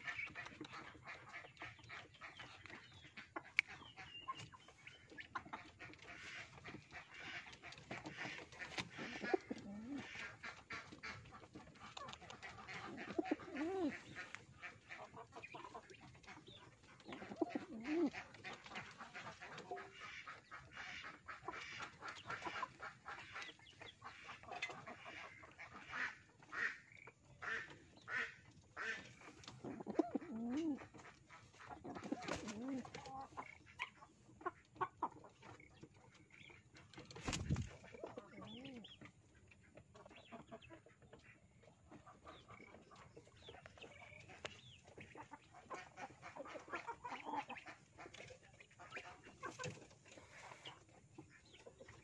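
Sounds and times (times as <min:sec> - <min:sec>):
pigeon cooing: 0:09.2 - 0:10.1, 0:12.9 - 0:14.1, 0:29.7 - 0:30.8, 0:32.0 - 0:33.0
clicks and rustles on bamboo floor: 0:34.8 - 0:38.2, 0:48.0 - 0:51.0.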